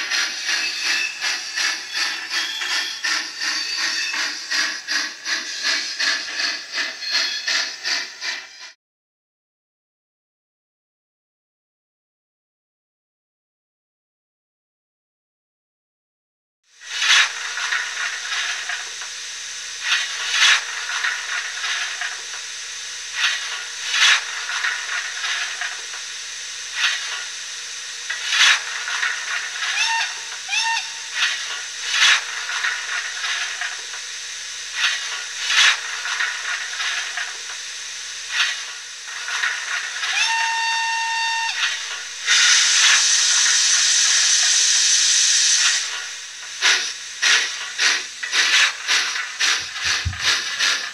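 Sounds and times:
steam hiss: 0.0 - 8.8, 16.8 - 50.9
steam whistle toots: 29.6 - 31.4, 40.0 - 45.6.

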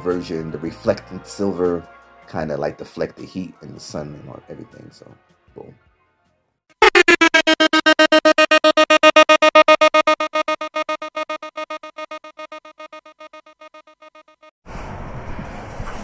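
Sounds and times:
stuttering synthesized tone: 6.8 - 14.5.

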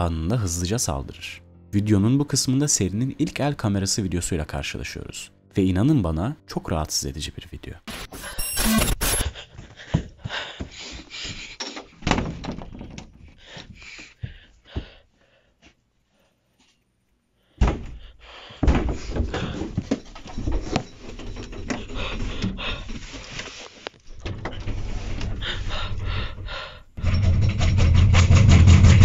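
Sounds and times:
knocks and thuds: 12.0 - 13.3, 17.6 - 20.8.

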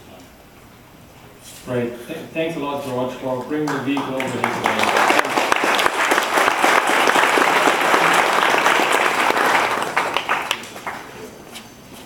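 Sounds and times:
audience applauding: 3.4 - 11.3.

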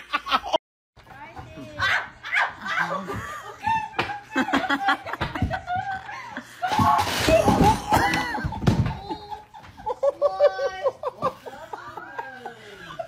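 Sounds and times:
loud laughter: 2.4 - 13.0
wooden chair breaking: 6.7 - 9.1.

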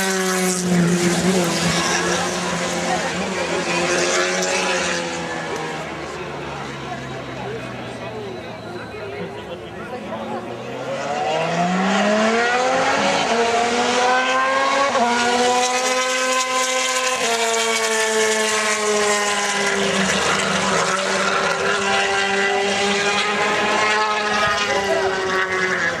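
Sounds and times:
motorcycle engine at full throttle: 12.6 - 26.0.

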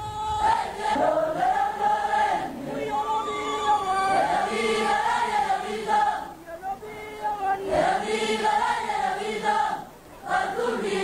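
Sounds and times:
group of voices chanting: 7.6 - 11.0.

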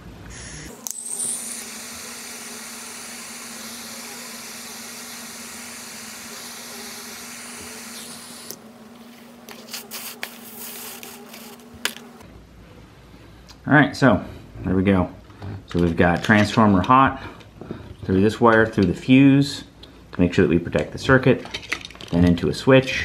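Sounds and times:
hot-air soldering iron hissing: 0.3 - 8.6, 9.6 - 11.6.

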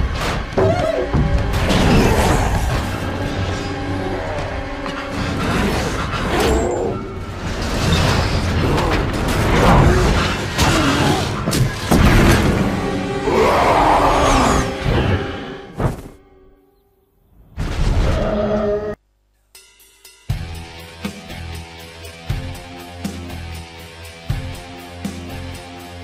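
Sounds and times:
metal scraping and crashing: 0.0 - 13.2
orchestral score: 8.6 - 16.2.

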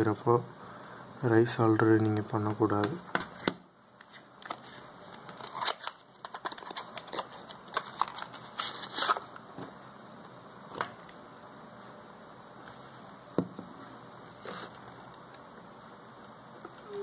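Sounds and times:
phone parts and box handling: 5.4 - 9.2.

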